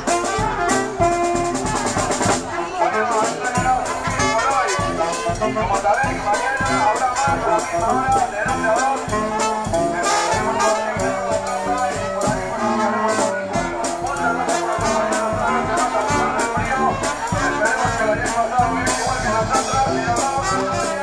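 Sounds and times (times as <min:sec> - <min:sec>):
drum and cymbal beat: 0:00.0 - 0:21.0
trumpets and trombones playing: 0:00.0 - 0:21.0.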